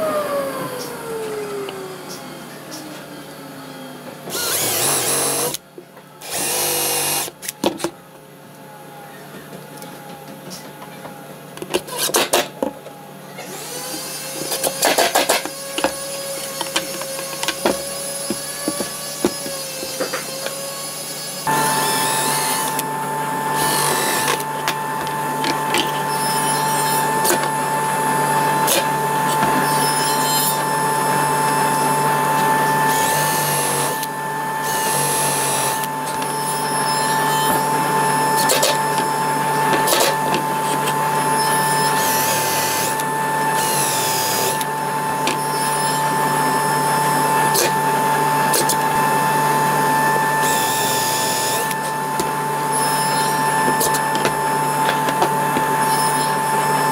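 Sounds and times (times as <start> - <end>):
cordless drill drilling into plywood: 4.3 - 5.6, 6.2 - 7.4, 13.4 - 56.9
steady hum: 14.1 - 56.9.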